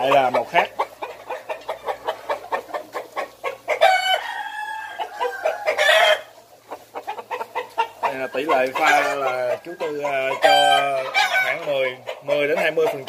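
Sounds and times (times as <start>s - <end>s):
roosters clucking: 0.0s - 13.0s
rooster crowing: 3.7s - 6.3s, 8.1s - 11.8s.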